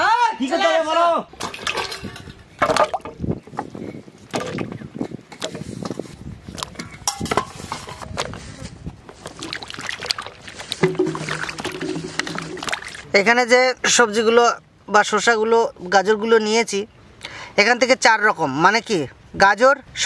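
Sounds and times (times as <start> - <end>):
hands sloshing in water: 9.1 - 13.1
vegetables splashing into water: 9.2 - 13.1.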